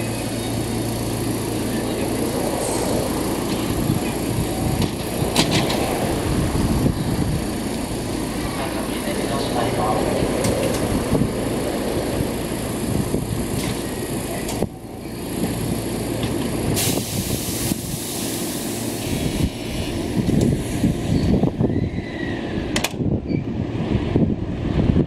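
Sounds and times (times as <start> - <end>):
train low running noise: 0.0 - 25.0
air hiss: 16.8 - 19.9.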